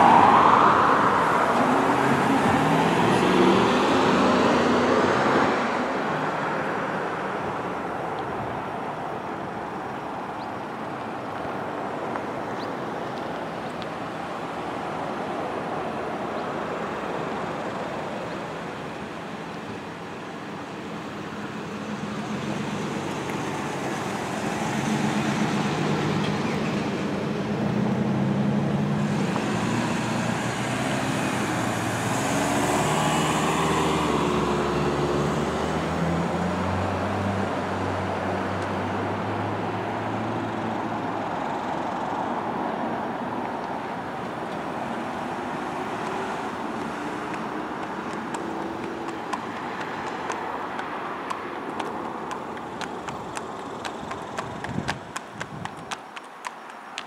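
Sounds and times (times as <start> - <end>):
cars and trucks driving past: 0.0 - 57.0
horse hooves on asphalt: 9.4 - 19.9, 20.5 - 27.6, 40.8 - 57.0.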